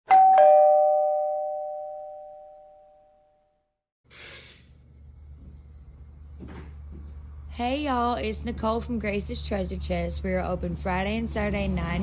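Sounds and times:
two-note doorbell chime: 0.1 - 3.5.

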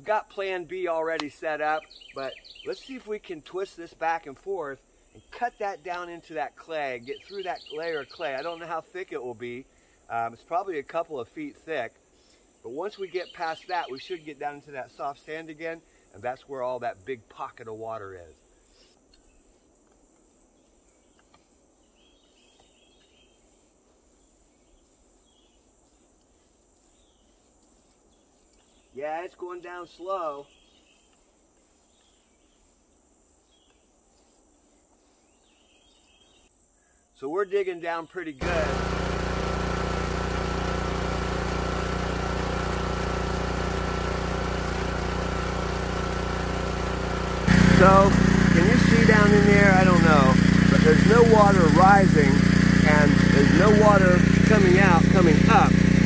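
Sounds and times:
faint insect chirps: 9.5 - 10.2, 15.8 - 17.2, 18.1 - 29.0, 30.5 - 37.2
small pump engine running: 38.4 - 56.0.

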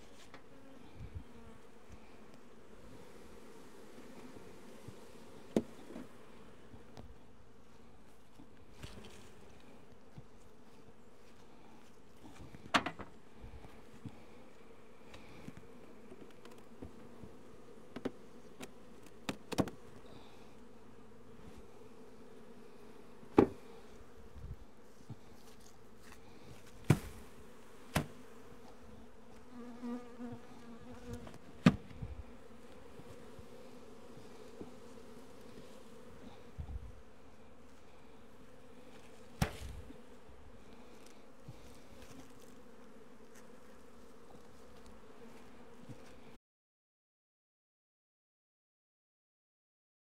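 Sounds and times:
bees buzzing: 13.2 - 25.3, 25.9 - 46.3.

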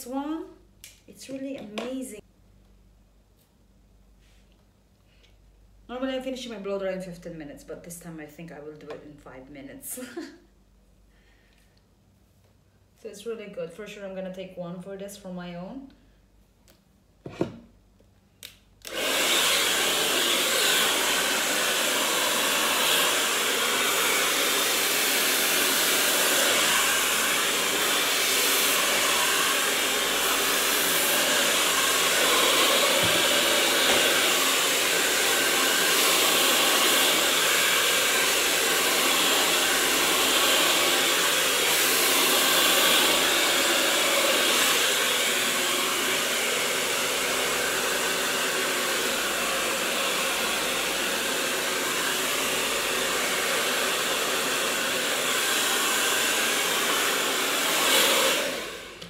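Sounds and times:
hair dryer blowing air: 18.8 - 59.0.

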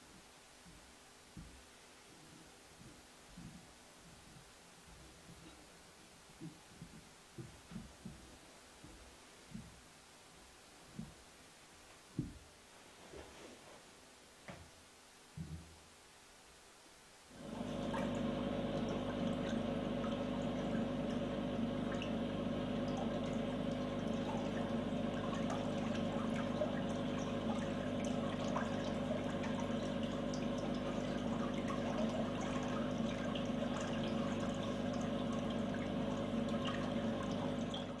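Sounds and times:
steady hum: 16.5 - 38.0
water flowing and gurgling: 17.4 - 38.0.

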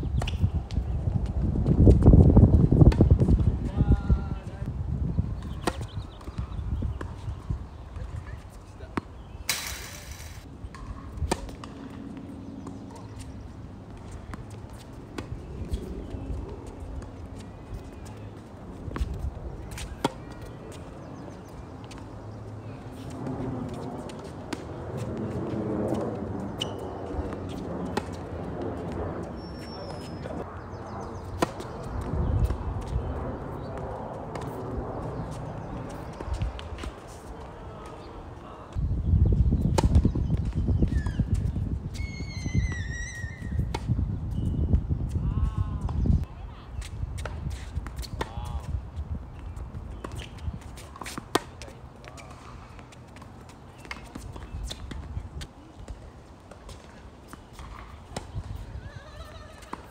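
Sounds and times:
tennis ball hit by racket: 9.0 - 11.9, 50.0 - 52.9
tennis racket strikes: 9.5 - 10.4
tennis ball bouncing: 49.9 - 55.1.

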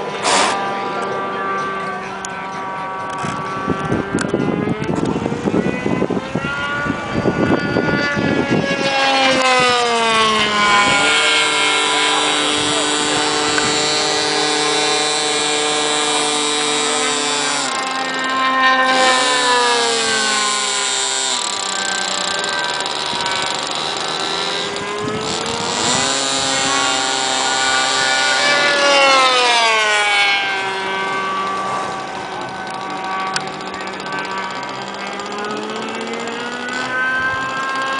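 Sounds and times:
model plane engine at high revs: 0.0 - 37.9.

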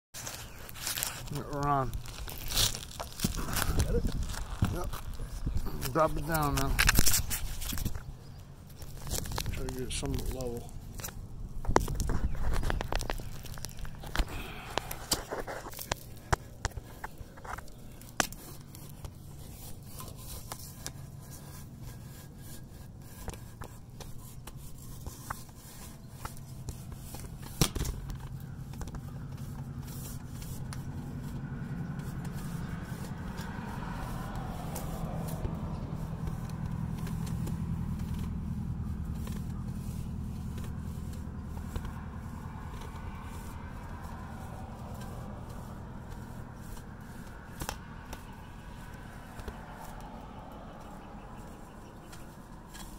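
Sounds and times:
camera scraping inside a chimney flue: 0.1 - 52.9
low steady rumble: 0.6 - 52.9.

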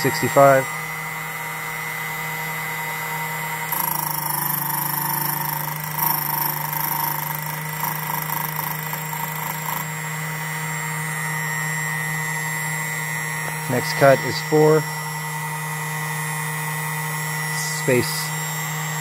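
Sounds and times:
key cutting machine motor running: 0.0 - 19.0
cutter cutting a key: 3.6 - 10.2.

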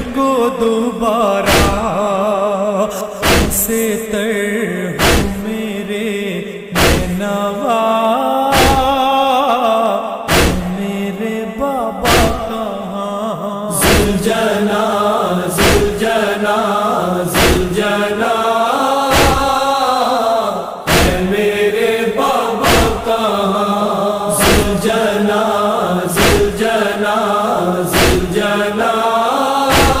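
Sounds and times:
heavy rhythmic thumps: 1.4 - 2.0, 3.2 - 3.8, 5.0 - 5.5, 6.8 - 7.2, 8.6 - 9.0, 10.3 - 10.8, 12.1 - 12.6, 13.8 - 14.5, 15.5 - 16.2, 17.3 - 18.0, 19.1 - 19.6, 20.9 - 21.6, 22.6 - 23.3, 24.3 - 25.1, 26.1 - 26.9, 27.9 - 28.6, 29.7 - 30.0
voices chanting mournfully: 4.8 - 30.0.

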